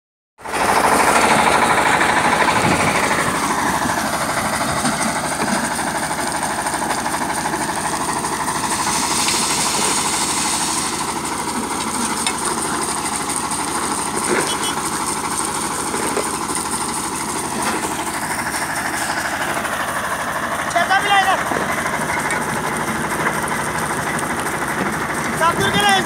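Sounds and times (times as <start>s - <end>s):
crusher mechanical clatter: 20.6s - 26.0s.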